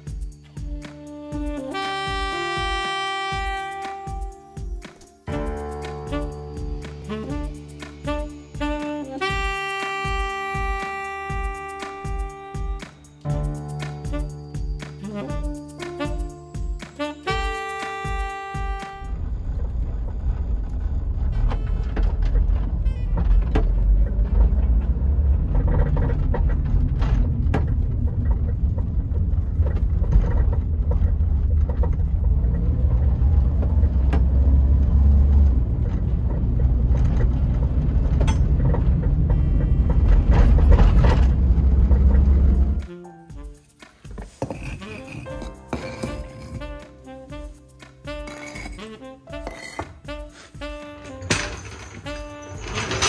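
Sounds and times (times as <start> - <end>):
road rumble inside car: 19.1 - 42.8
suspension knocks and clunks: 19.2 - 42.8.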